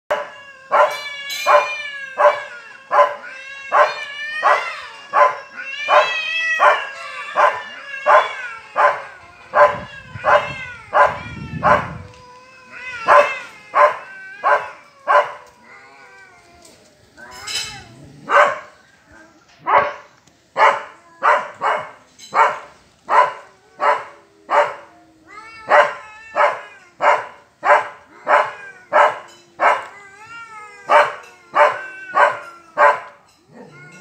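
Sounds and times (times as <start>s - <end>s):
dog barking: 0.1s - 9.0s, 9.6s - 11.9s, 13.0s - 15.4s, 18.3s - 18.7s, 19.6s - 24.8s, 25.7s - 29.9s, 30.9s - 33.2s
cats yowling: 0.1s - 20.0s, 20.6s - 22.5s, 23.1s - 34.0s.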